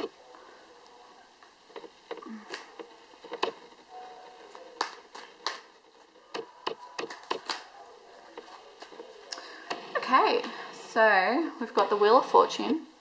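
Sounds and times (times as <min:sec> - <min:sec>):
cards shuffled snapping: 0:04.8 - 0:05.7, 0:06.4 - 0:07.7.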